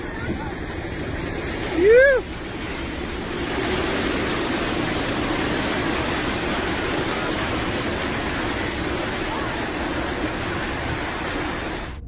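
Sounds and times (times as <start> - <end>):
seawater rushing across beach: 0.0 - 12.0.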